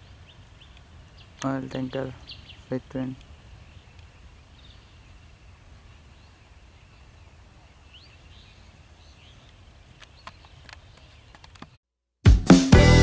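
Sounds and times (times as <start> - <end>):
bird chirps: 0.0 - 11.5
sharp clicks: 10.0 - 11.8.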